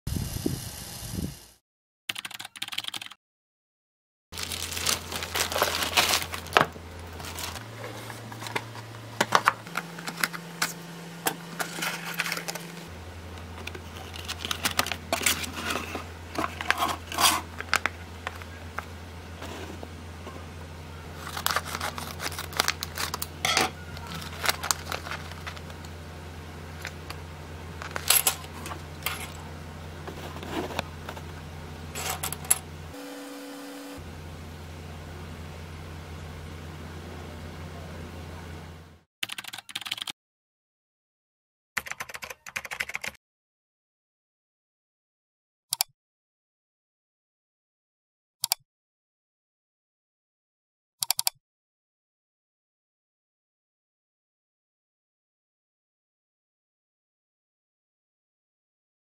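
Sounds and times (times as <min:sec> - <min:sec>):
plastic bag crinkling: 0:04.4 - 0:08.5, 0:21.1 - 0:26.0, 0:27.8 - 0:29.4
low steady hum: 0:04.4 - 0:39.0.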